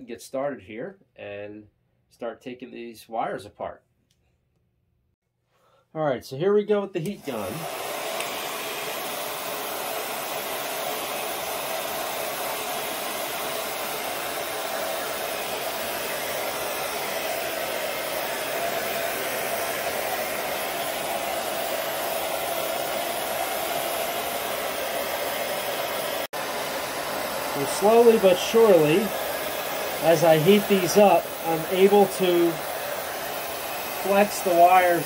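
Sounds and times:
heat gun blowing hot air: 7.1 - 35.0.

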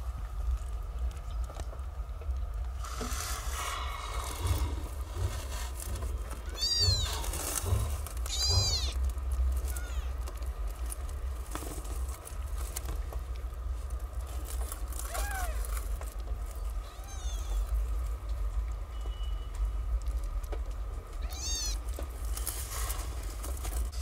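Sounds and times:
kittens mewing: 6.4 - 9.0, 9.6 - 10.2, 15.0 - 15.8, 16.7 - 17.8, 21.2 - 21.9.

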